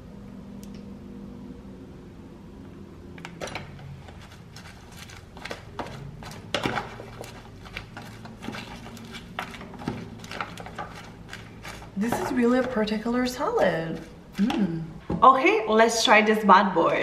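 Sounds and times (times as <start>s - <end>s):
fork scraping plastic container: 4.0s - 12.8s.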